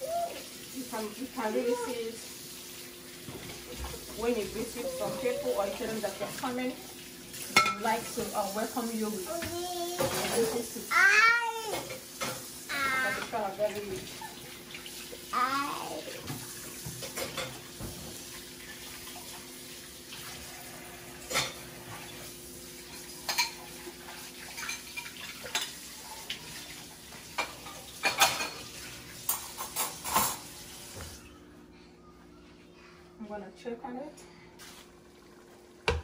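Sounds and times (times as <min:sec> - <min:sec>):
dishes and cutlery clattering: 0:07.4 - 0:08.2, 0:09.4 - 0:10.6, 0:16.2 - 0:18.3, 0:22.8 - 0:25.9, 0:27.3 - 0:30.6
tap running: 0:35.8 - 0:36.0.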